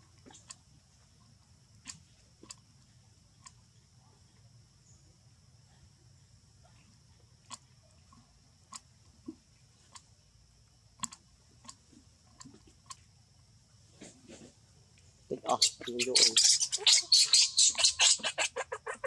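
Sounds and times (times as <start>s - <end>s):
monkey grooming clicks and smacks: 11.0s - 11.8s.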